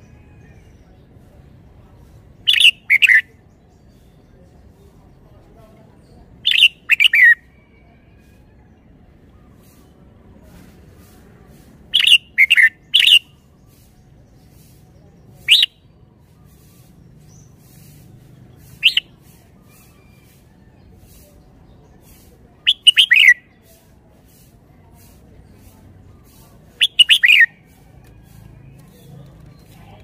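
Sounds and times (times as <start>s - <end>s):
bulbul singing: 2.3s - 4.2s, 6.3s - 7.5s, 11.9s - 14.8s, 15.4s - 23.8s, 25.4s - 30.0s.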